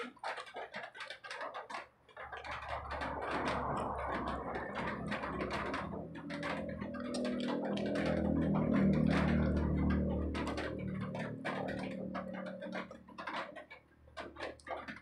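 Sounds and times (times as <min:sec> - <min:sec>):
low hum: 0:02.4 - 0:13.4
faint music: 0:02.4 - 0:13.5.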